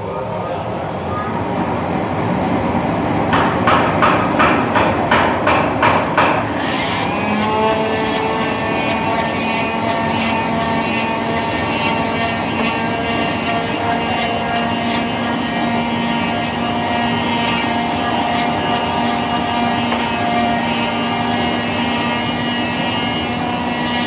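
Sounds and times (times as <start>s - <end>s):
evenly spaced workshop strokes: 3.2s - 24.0s
machine motor humming and whining: 6.5s - 24.0s.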